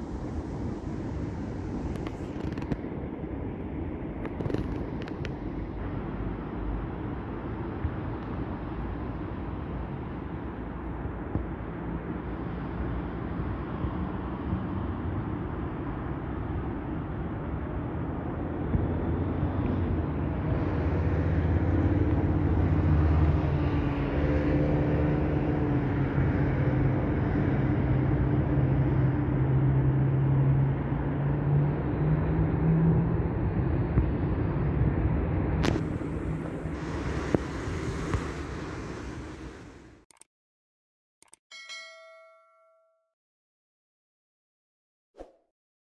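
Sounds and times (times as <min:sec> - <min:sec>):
vehicle engine rumbling: 0:00.0 - 0:10.0, 0:17.9 - 0:40.0
sharp click: 0:41.2 - 0:41.4.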